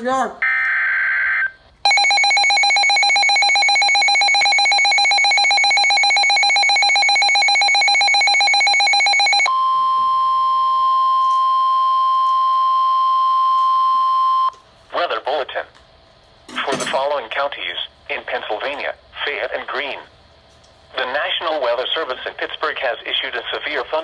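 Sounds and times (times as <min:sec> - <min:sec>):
rapidly pulsing alert alarm: 0:00.4 - 0:09.5
steady warning alarm tone: 0:00.4 - 0:14.6.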